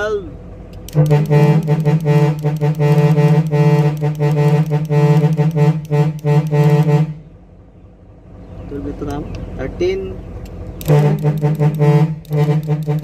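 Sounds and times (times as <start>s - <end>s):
truck horn short blasts: 0.9s - 7.2s, 10.8s - 13.0s.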